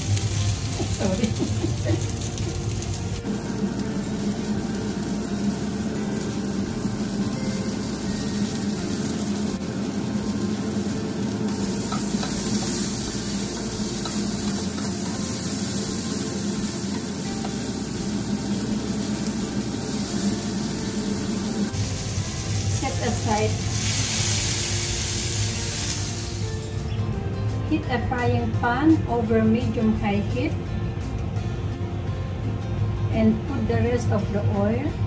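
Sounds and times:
tomatoes sizzling in oil: 0:00.0 - 0:27.0.

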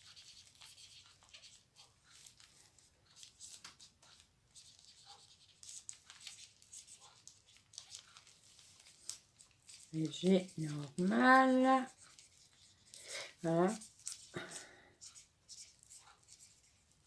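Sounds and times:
packaging rustling and crinkling: 0:01.2 - 0:11.3.

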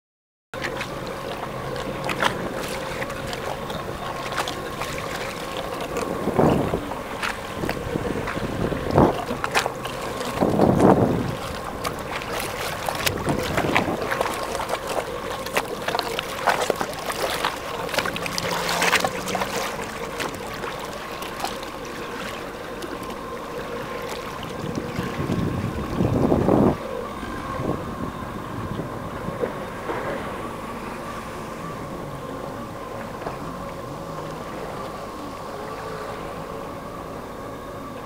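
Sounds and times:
jet ski engine running: 0:00.6 - 0:38.0
wind buffeting microphone: 0:01.5 - 0:20.9, 0:24.2 - 0:34.9.

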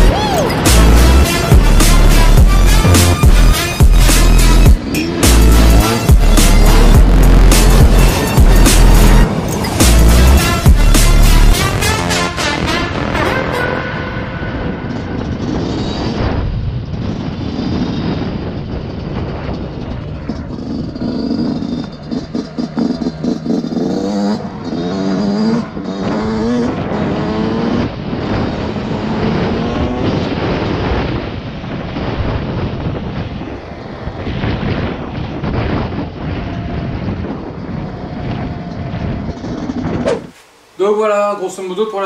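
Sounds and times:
motocross engine revving: 0:00.0 - 0:12.3, 0:20.2 - 0:30.6.

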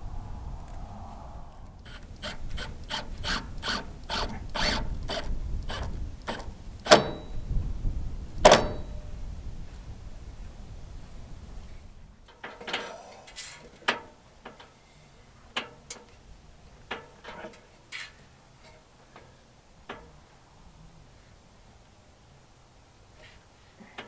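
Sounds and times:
low steady rumble: 0:00.0 - 0:12.3.

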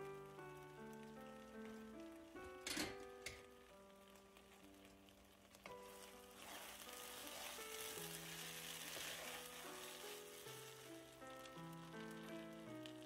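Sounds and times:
rice bubbling and sizzling: 0:00.0 - 0:13.0
soft background music: 0:00.0 - 0:13.0
wooden spoon stirring: 0:04.4 - 0:13.0.

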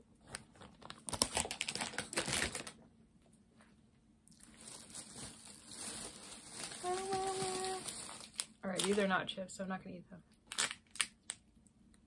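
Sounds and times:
plastic packaging crinkling: 0:00.2 - 0:02.8, 0:04.3 - 0:09.2, 0:10.4 - 0:11.4.

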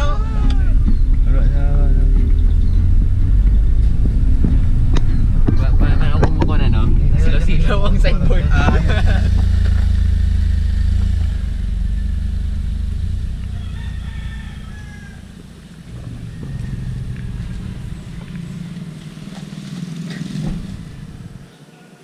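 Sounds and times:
rooster crowing: 0:00.0 - 0:00.9, 0:13.3 - 0:18.0
car driving on gravel: 0:00.0 - 0:21.7.

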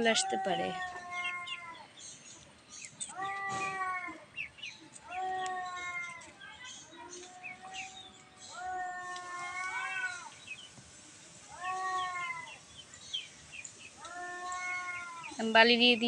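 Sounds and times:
cat meowing: 0:00.0 - 0:01.9, 0:03.1 - 0:04.3, 0:05.0 - 0:06.3, 0:07.3 - 0:10.3, 0:11.5 - 0:12.6, 0:14.0 - 0:15.4.

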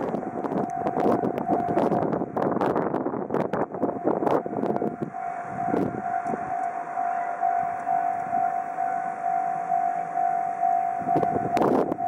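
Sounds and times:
level crossing warning bell: 0:00.0 - 0:02.8, 0:03.4 - 0:12.0.

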